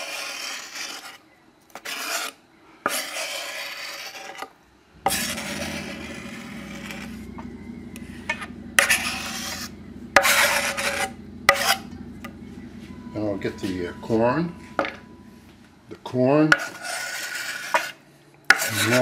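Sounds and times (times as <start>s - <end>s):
knife scraping wooden board: 0.0s - 4.5s, 16.5s - 19.0s.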